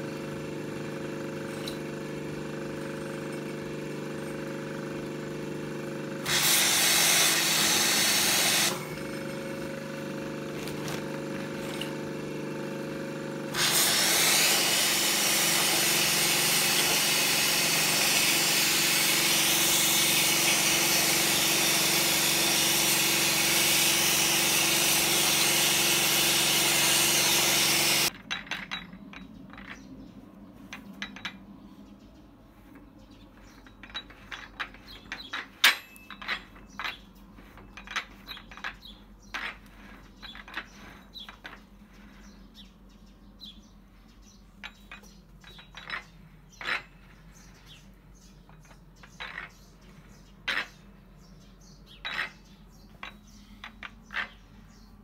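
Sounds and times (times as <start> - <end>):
pressure washer motor hum: 0.0 - 28.2
water jet hissing against metal: 6.2 - 8.8, 13.5 - 28.1
light metal clinks: 33.6 - 37.0.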